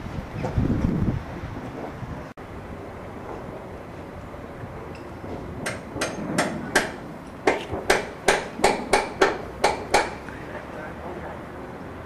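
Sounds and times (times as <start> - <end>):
hammer striking heavy timber: 5.3 - 10.3.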